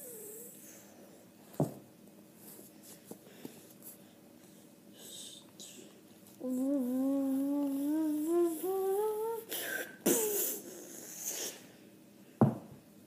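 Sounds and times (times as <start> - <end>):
boy humming rising note: 6.4 - 10.8.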